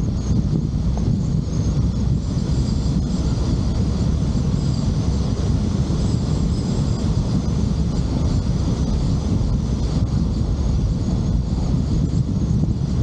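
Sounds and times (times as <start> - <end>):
faint high whine: 0.0 - 13.0
low road rumble: 0.0 - 13.0.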